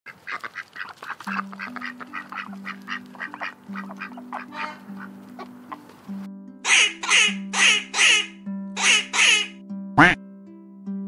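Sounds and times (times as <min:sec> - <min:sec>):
ducks quacking: 0:00.1 - 0:06.0, 0:06.7 - 0:10.2
soft background music: 0:01.2 - 0:11.0.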